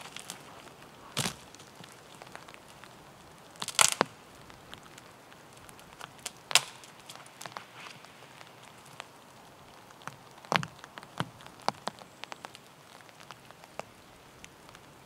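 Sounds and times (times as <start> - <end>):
dry branches snapping: 0.0 - 9.2.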